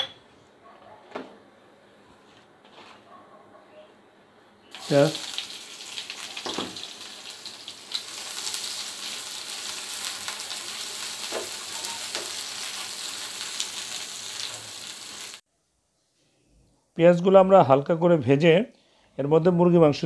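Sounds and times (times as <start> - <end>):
onions sizzling in oil: 4.7 - 15.4.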